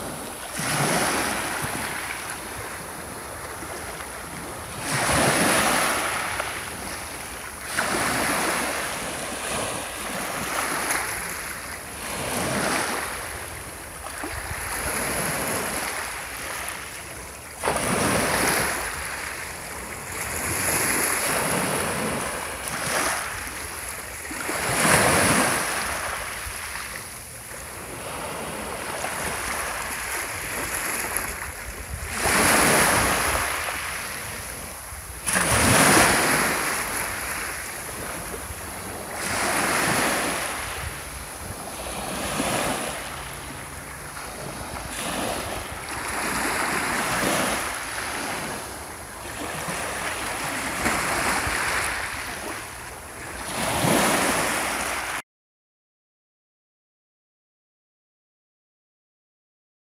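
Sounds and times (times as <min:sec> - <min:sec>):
waves washing on pebble beach: 0:32.1 - 0:43.2.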